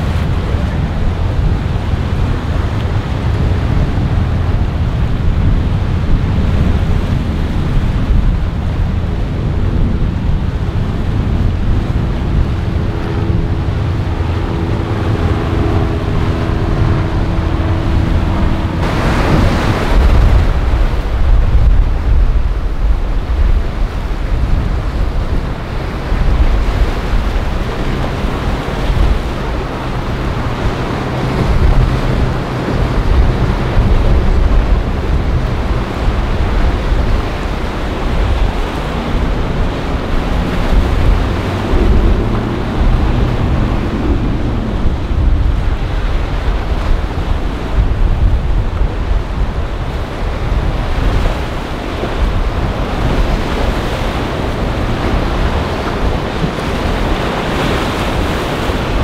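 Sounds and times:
low hum of boat engines: 0.0s - 59.0s
motorboat passing: 0.0s - 59.0s
waves washing: 0.0s - 59.0s
wind on microphone: 0.0s - 59.0s.

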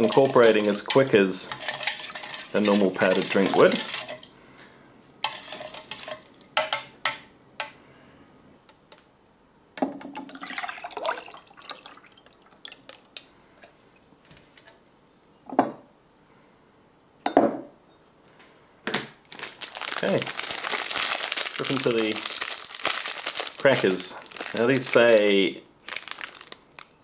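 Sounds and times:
liquid sloshing: 0.0s - 6.5s, 10.2s - 14.1s.

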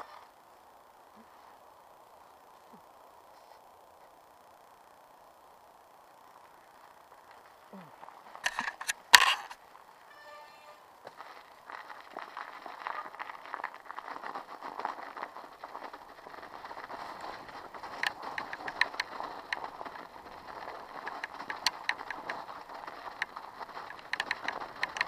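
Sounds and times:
bike tyres crunching snow: 0.0s - 25.0s
bike rattling: 6.2s - 25.0s
sharp clicks and knocks: 8.4s - 9.6s, 17.9s - 19.7s, 21.0s - 22.4s, 23.1s - 25.0s.

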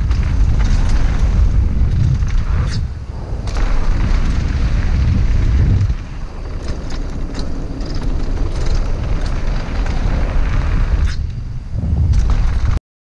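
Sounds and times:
wind rushing over microphone: 0.0s - 12.8s
bike clicks and rattles: 5.7s - 11.4s.

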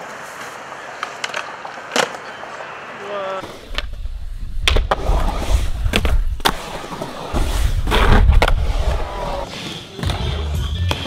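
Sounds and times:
skateboard wheels rolling on concrete: 0.0s - 11.0s
skateboard clacks: 0.8s - 2.6s.

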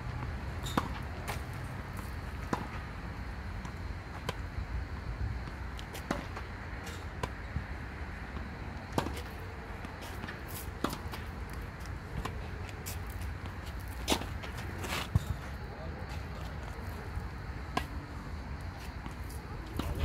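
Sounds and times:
tennis balls struck with rackets: 8.3s - 15.6s, 17.6s - 18.1s
steady low rumble: 17.5s - 20.0s.

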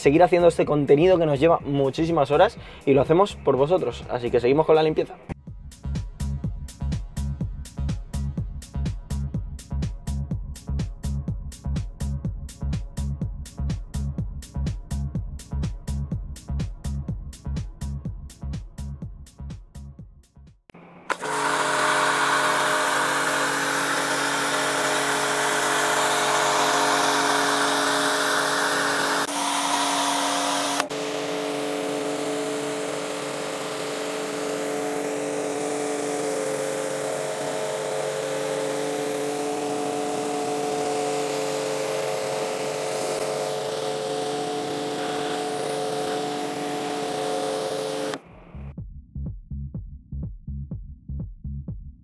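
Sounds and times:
power tool motor running: 20.7s - 48.3s.

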